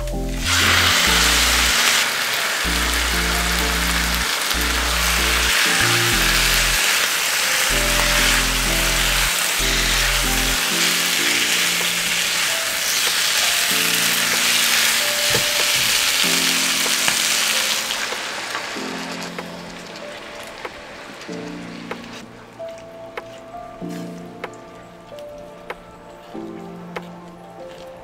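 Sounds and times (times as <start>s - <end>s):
background music with bass line: 0.0s - 1.8s, 2.7s - 6.8s, 7.7s - 12.0s
chicken sizzling in oil: 0.4s - 21.3s.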